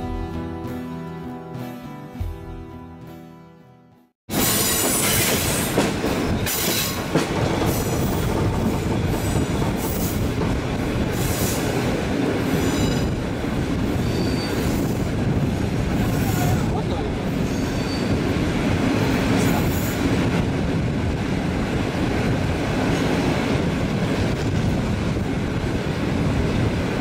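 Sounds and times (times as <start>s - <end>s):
train wheels rolling on rails: 4.3s - 27.0s
train wheel clacks: 4.4s - 16.7s
high wheel squeals: 13.9s - 15.0s, 17.4s - 18.2s.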